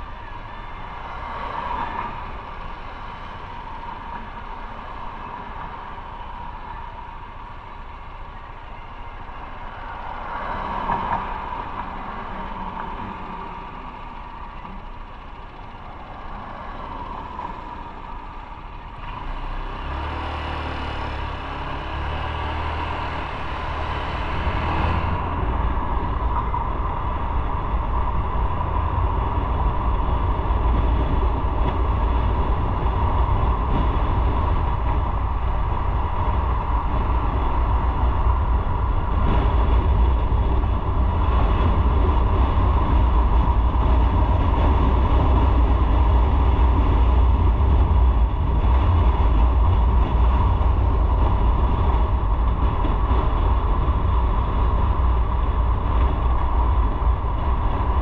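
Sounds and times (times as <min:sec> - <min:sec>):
motorcycle engine: 0:00.0 - 0:58.0
road noise: 0:00.0 - 0:58.0
wind rumble on microphone: 0:00.0 - 0:58.0.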